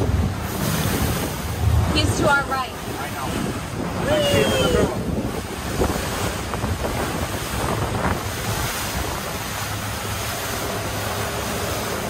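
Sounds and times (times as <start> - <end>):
choppy water rushing: 0.0 - 12.0
wind buffeting microphone: 0.0 - 12.0.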